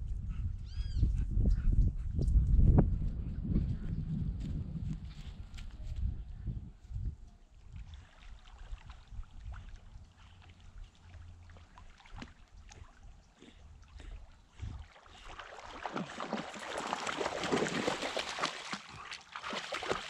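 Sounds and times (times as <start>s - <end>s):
wind rumble on microphone: 0.0s - 10.9s, 12.1s - 15.2s
water trickling and lapping: 7.5s - 20.0s.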